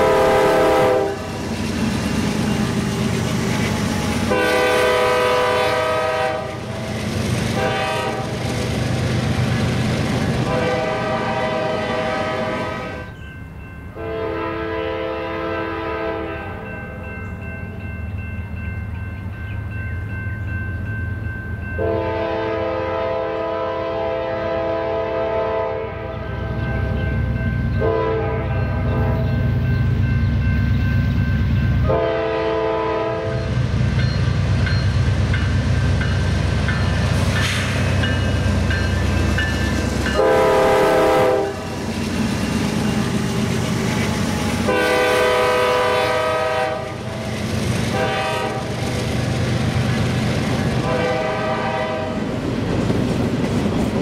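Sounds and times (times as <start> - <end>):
locomotive air horn blasts: 0.0 - 1.3, 4.3 - 6.8, 7.5 - 8.3, 10.4 - 13.1, 14.0 - 16.7, 21.8 - 26.6, 27.8 - 29.3, 31.8 - 33.5, 40.1 - 41.7, 44.6 - 47.0, 47.9 - 48.8, 50.8 - 52.2
locomotive engine rumbling: 0.0 - 54.0
train running on rails: 0.0 - 54.0.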